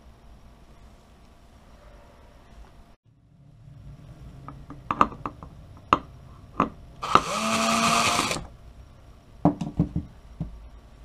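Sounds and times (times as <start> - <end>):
motor whirr: 7.0 - 8.5.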